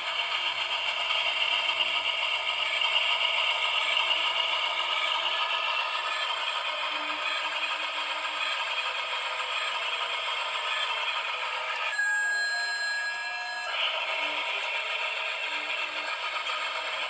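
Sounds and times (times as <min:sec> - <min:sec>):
toy train clattering whir: 0:00.0 - 0:17.0
steady high tone: 0:03.8 - 0:17.0.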